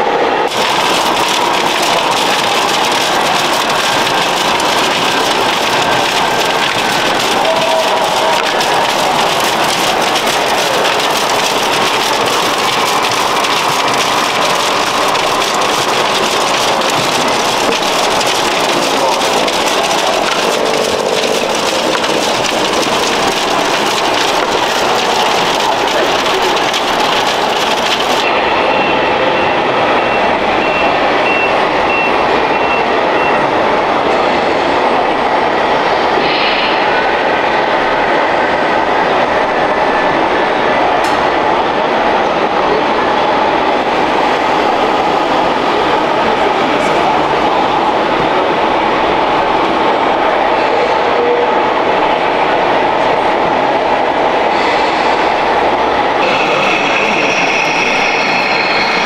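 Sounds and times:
crowd in exhibition hall: 0.0s - 59.0s
trickling gravel hiss: 0.5s - 28.3s
model machines running: 0.5s - 28.8s, 54.5s - 59.0s.

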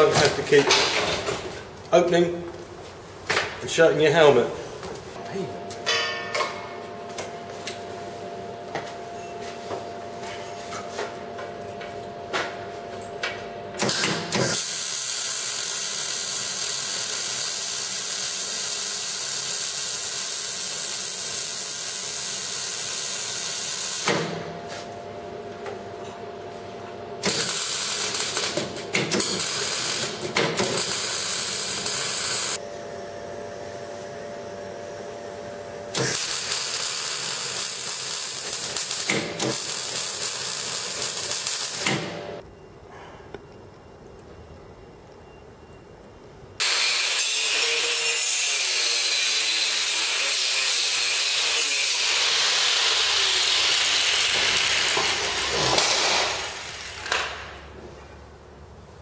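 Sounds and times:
welding arc crackling and hissing: 13.8s - 24.2s, 27.2s - 32.6s, 35.9s - 42.2s, 46.6s - 57.2s.

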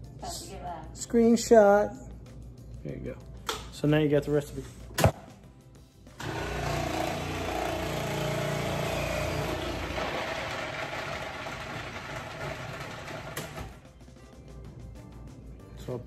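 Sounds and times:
food processor motor: 6.2s - 13.8s.

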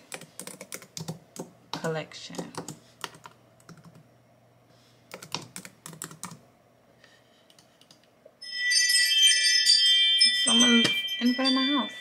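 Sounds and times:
computer keyboard keystrokes: 0.0s - 1.5s, 2.3s - 4.0s, 5.1s - 6.4s, 7.5s - 8.1s
electronic chime: 8.4s - 12.0s.

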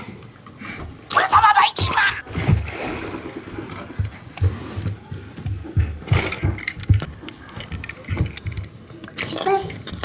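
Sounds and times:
plastic toy knocking and rolling: 6.0s - 10.0s.

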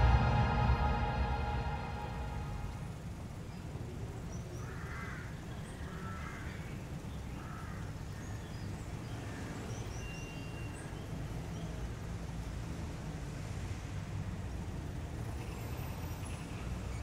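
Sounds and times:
low town rumble: 0.0s - 4.5s.

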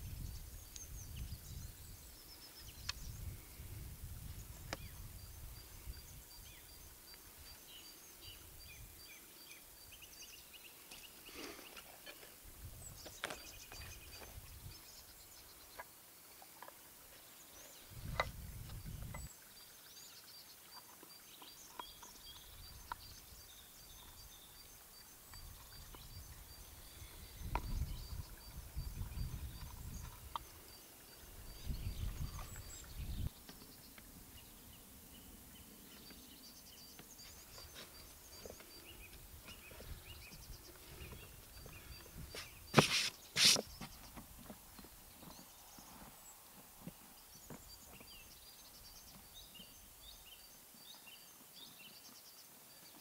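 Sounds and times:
wind buffeting microphone: 0.0s - 6.8s, 17.9s - 19.3s, 25.4s - 30.4s, 31.4s - 33.4s.

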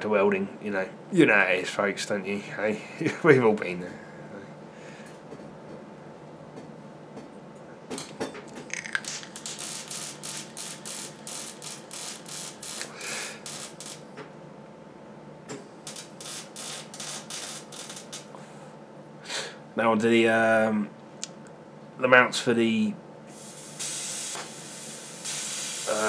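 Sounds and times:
faint steady hum: 0.0s - 26.0s
arc welding crackling: 8.7s - 14.1s, 15.8s - 18.4s, 23.3s - 26.0s.

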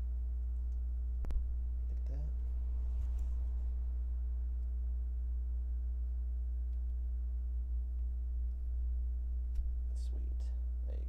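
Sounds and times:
faint high steady tones: 0.0s - 11.0s
steady low hum: 0.0s - 11.0s.

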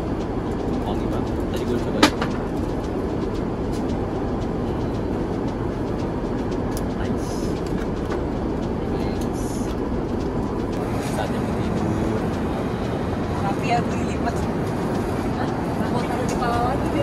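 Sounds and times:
airliner cabin rumble: 0.0s - 17.0s.

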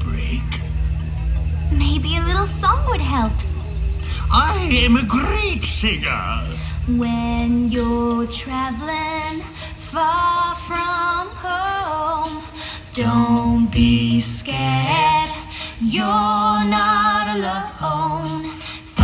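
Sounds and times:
backing music: 0.0s - 19.0s
woman singing with vibrato: 6.6s - 19.0s.

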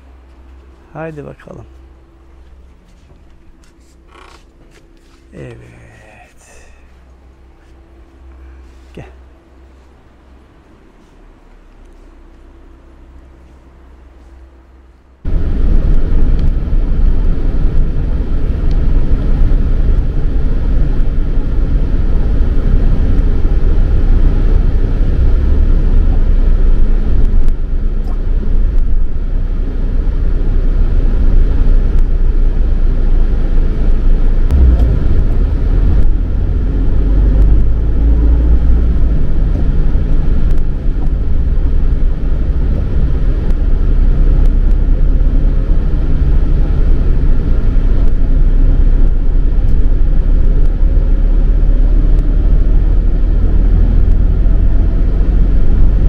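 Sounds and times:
road and engine rumble in vehicle: 0.0s - 56.0s.

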